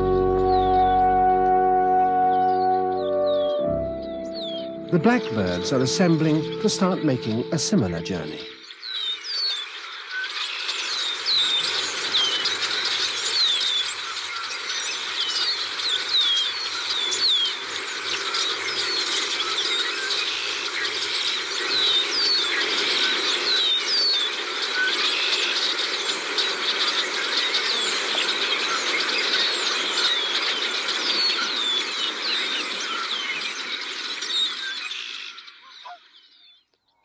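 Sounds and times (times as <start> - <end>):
flock of blackbirds chirping: 8.9 - 36.6.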